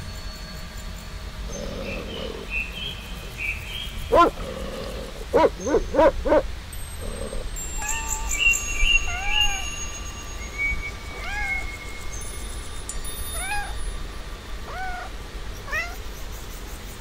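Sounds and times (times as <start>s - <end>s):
puppy barking: 4.1s - 4.4s, 5.3s - 6.5s.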